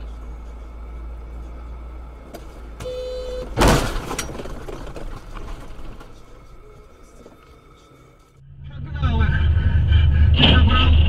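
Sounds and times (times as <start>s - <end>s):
engine and road rumble: 0.0s - 11.0s
car collision impact: 2.2s - 6.4s
car horn blast: 2.8s - 3.6s.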